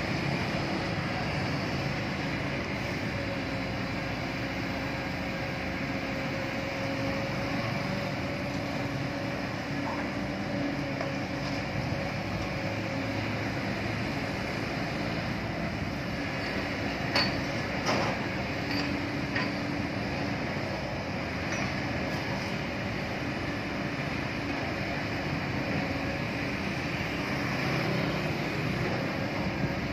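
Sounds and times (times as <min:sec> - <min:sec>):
excavator diesel engine humming: 0:00.0 - 0:29.9.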